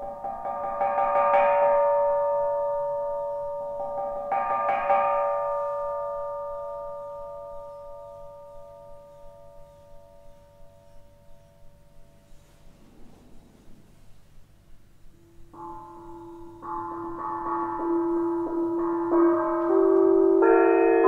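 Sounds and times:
bell-like tones ringing: 0:15.1 - 0:21.0.

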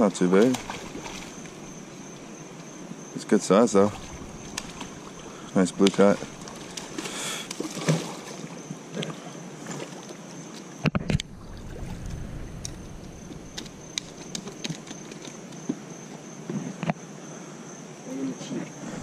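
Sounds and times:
river water lapping on rocks: 0:00.2 - 0:02.9, 0:03.5 - 0:10.6, 0:11.2 - 0:15.6.

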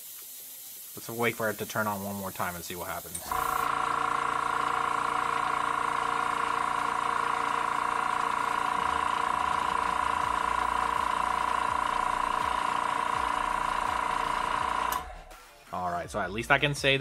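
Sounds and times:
airbrush compressor whining hum: 0:03.1 - 0:15.3.

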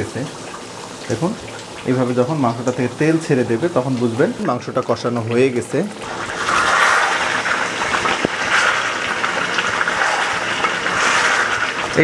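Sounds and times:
meat sizzling in a pan: 0:06.0 - 0:12.0
wooden spatula stirring: 0:06.0 - 0:12.0.

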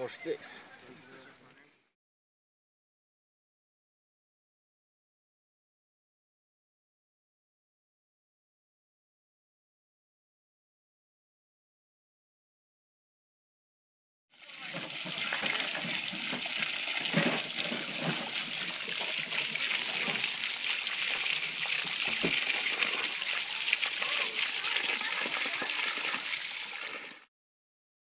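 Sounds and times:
water running and splashing: 0:14.4 - 0:27.3.

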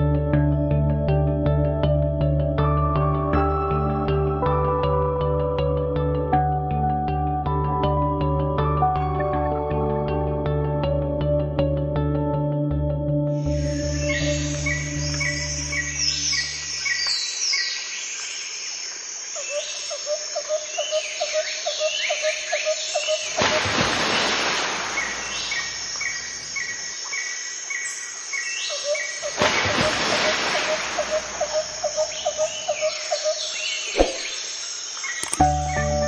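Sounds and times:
birds chirping and calling: 0:25.0 - 0:29.4, 0:30.7 - 0:36.0.

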